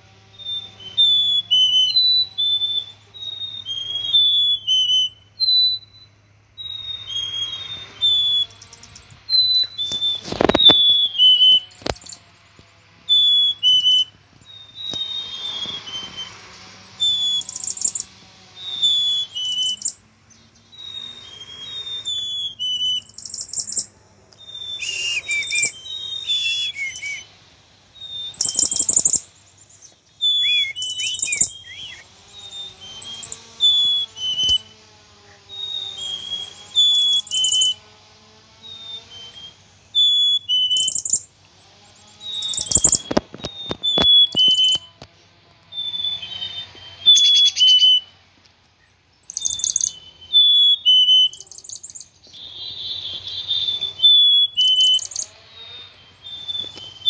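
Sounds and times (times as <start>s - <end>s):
chickadees calling: 0.0s - 57.0s
sharp clicks: 11.6s - 12.7s, 28.4s - 34.7s, 42.4s - 45.7s.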